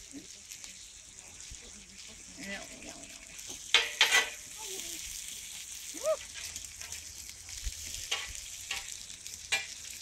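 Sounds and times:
food sizzling on a griddle: 0.0s - 10.0s
metal spatula scraping griddle: 3.7s - 4.5s.

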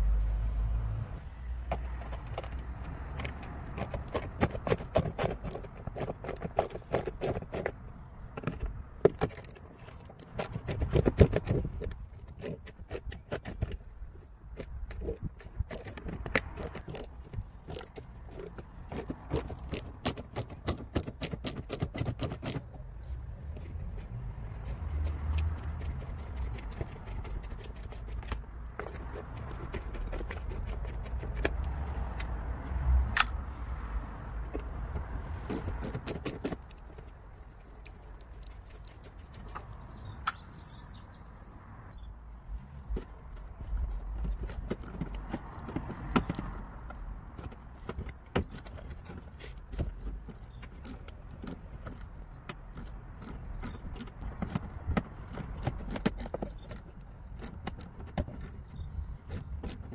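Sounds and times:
ratchet and metal tools clicking: 14.9s - 22.6s, 35.3s - 36.9s, 50.0s - 59.9s.

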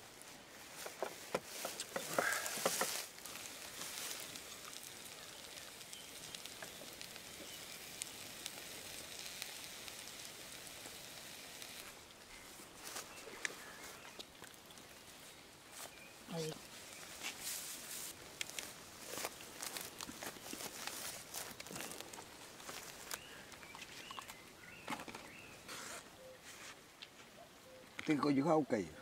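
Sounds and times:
handling noise: 0.7s - 4.7s
food sizzling in a frying pan: 1.5s - 12.1s.

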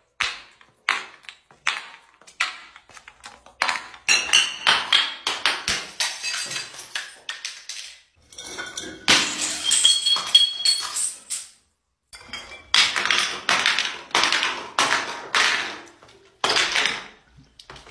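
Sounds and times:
glass bottles tumbling down stairs: 0.1s - 11.6s, 12.2s - 17.9s
glass shattering: 5.9s - 11.6s.

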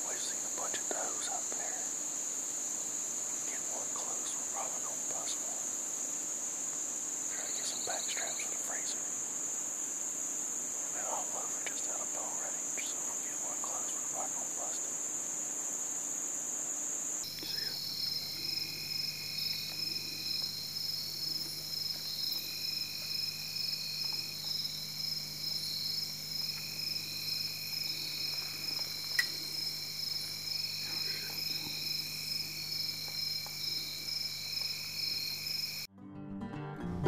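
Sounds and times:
insects trilling: 0.0s - 35.9s
single sharp click: 29.1s - 29.4s.

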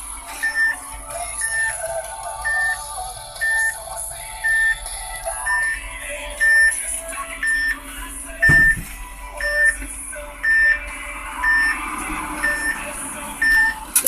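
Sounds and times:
short high warning beeps: 6.4s - 6.8s, 7.4s - 7.8s, 9.4s - 9.8s, 11.4s - 11.8s, 12.4s - 13.8s
low thud: 8.4s - 9.0s.

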